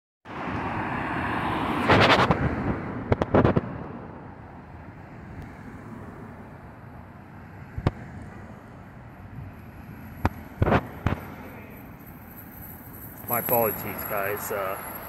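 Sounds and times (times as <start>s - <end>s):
car driving past: 0.3s - 4.4s.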